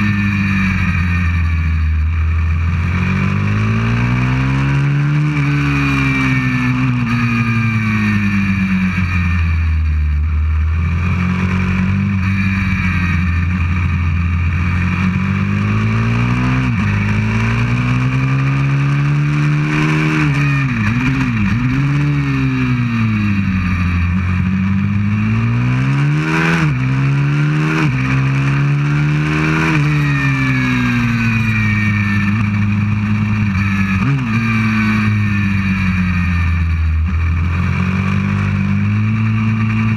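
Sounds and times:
motorbike engine revving: 0.0s - 39.9s.

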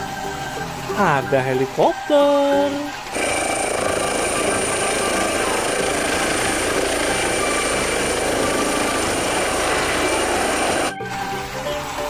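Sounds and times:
helicopter rotor and turbine whine: 3.1s - 10.9s.

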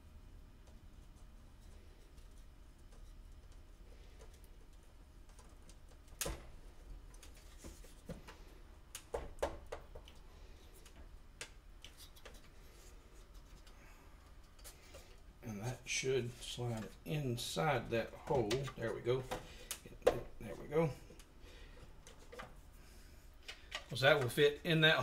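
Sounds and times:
wooden parts clicking and tapping: 18.2s - 22.6s, 23.4s - 24.6s.

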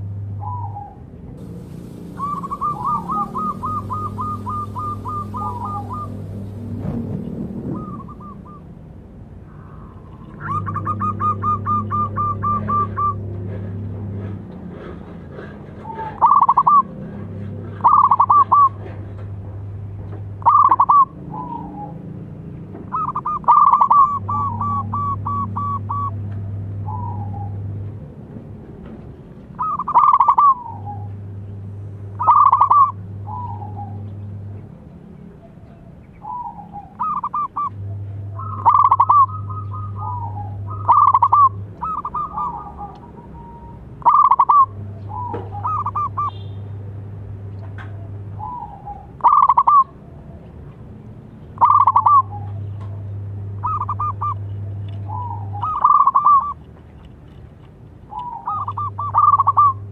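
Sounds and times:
low hum: 1.3s - 8.6s
dove cooing: 1.5s - 7.1s, 7.7s - 8.6s, 9.6s - 13.7s, 15.4s - 18.9s, 20.4s - 22.0s, 22.9s - 26.2s, 29.6s - 31.2s, 32.2s - 34.1s, 35.4s - 46.4s, 47.8s - 50.0s, 51.6s - 52.7s, 53.6s - 56.7s, 58.1s - 59.9s.

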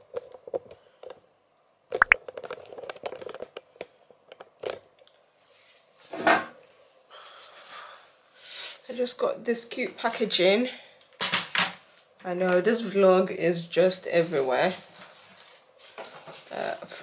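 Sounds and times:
handling clicks and crinkles: 2.2s - 5.2s.

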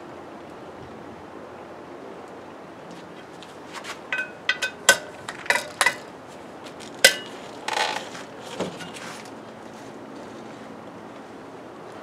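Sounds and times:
metal wrench clinking on bolts: 4.1s - 6.1s, 7.0s - 8.0s.

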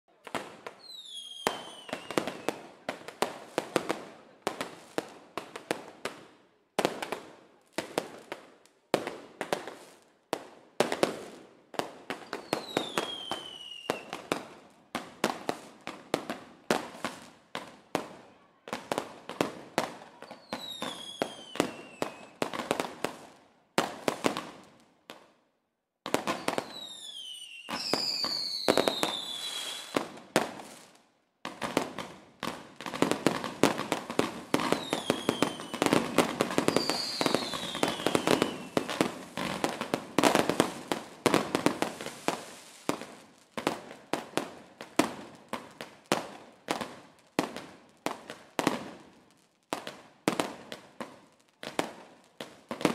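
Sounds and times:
fireworks bangs and crackles: 0.1s - 25.4s, 26.0s - 52.9s
whistling firework shells: 0.7s - 2.6s, 12.1s - 14.2s, 20.2s - 22.4s, 26.3s - 30.0s, 34.6s - 39.0s.

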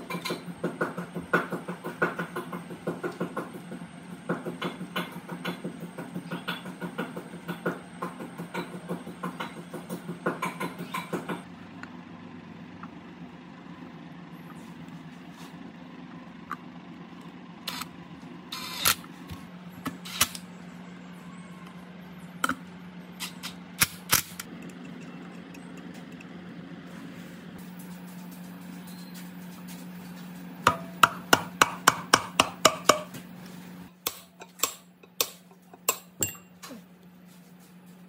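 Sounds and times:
low hum: 11.5s - 31.0s.

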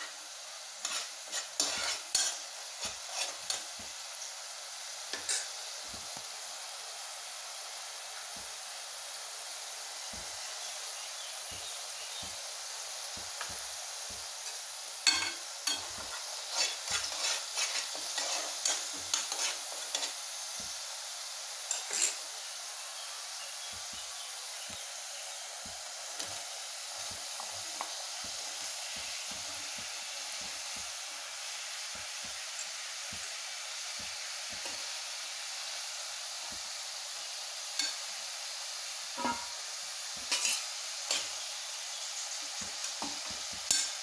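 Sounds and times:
food sizzling in a pan: 0.0s - 44.0s
utensil scraping a pan: 0.8s - 3.7s, 15.0s - 20.2s, 21.7s - 22.2s, 40.2s - 41.3s.

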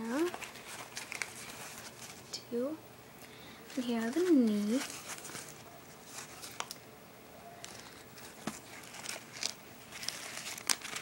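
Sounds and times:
knee pads rustling: 3.7s - 6.7s.

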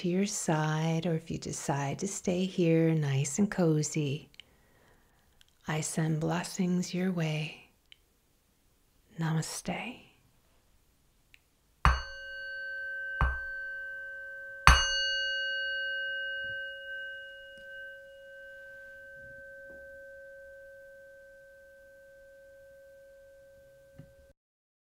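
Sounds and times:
meditation bell ringing: 11.9s - 24.3s.

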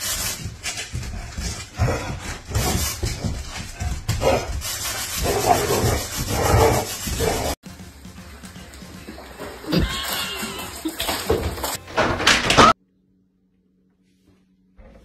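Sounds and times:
scuffing and rattling: 0.0s - 10.0s.

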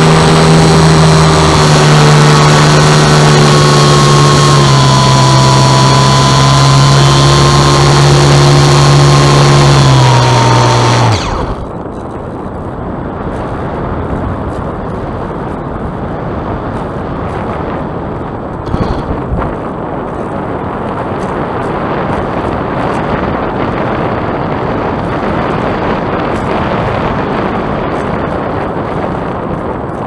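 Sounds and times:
propeller motor whining: 0.0s - 12.3s, 18.3s - 30.0s
airflow rushing over microphone: 11.1s - 30.0s.

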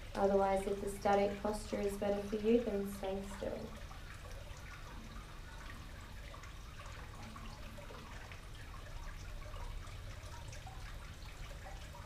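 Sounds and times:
fountain water trickling: 0.0s - 12.0s
low steady hum: 0.0s - 12.0s.

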